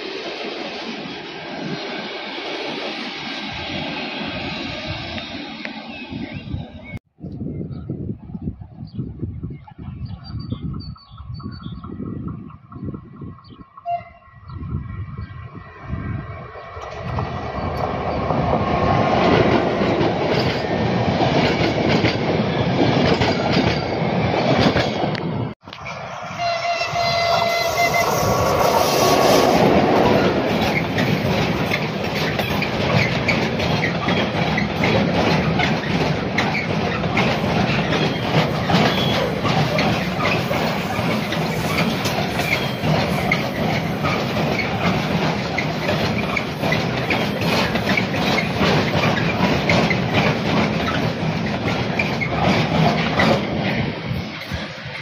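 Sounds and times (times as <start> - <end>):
passenger train passing: 0.0 - 7.0, 8.1 - 55.0
freight train wheels clattering: 16.8 - 25.6, 26.9 - 55.0.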